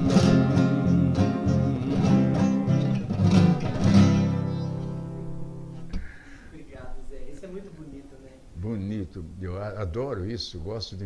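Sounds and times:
fingerpicked classical guitar: 0.0 - 6.0.

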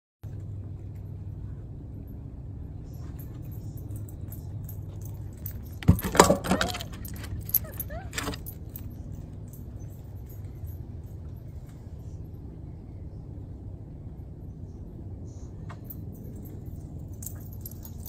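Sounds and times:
steady low hum: 0.2 - 18.0
dog collar tags jangling: 2.8 - 11.6, 15.7 - 18.0.

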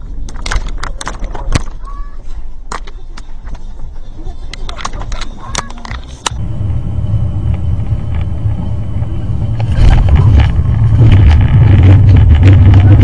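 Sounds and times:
car road and engine rumble: 5.0 - 13.0.

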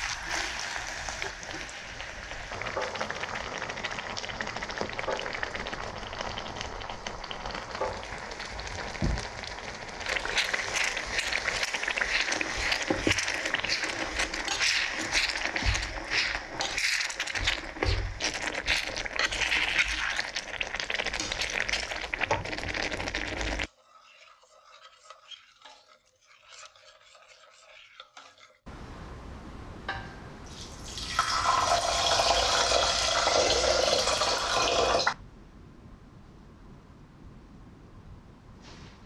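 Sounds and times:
metal spoon scraping a pan: 0.0 - 2.0, 10.0 - 28.6
onion sizzling in a pan: 0.0 - 28.6, 29.9 - 35.2
soft ticks of dhal stirring: 0.0 - 28.6
water pouring into a saucepan: 0.0 - 28.6, 30.4 - 35.2.

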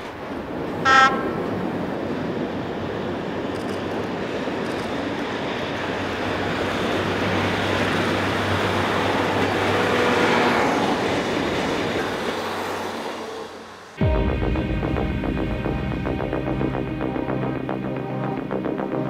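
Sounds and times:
diesel train engine hum: 0.0 - 19.0
rail noise: 0.0 - 19.0
music: 14.0 - 19.0.

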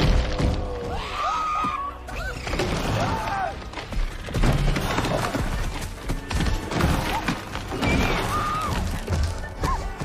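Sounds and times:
film music: 0.0 - 10.0.

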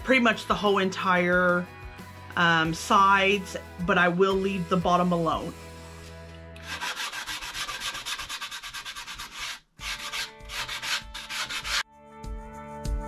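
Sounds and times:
background guitar music: 0.0 - 6.8, 9.8 - 13.0
sanding block scuffing wood: 6.6 - 11.8.

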